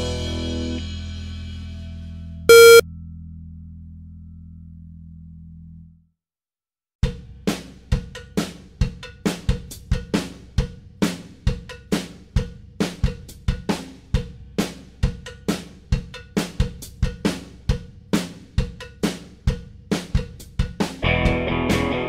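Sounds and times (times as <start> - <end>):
drum beat with kick snare and hi-hat: 7.0 - 21.0.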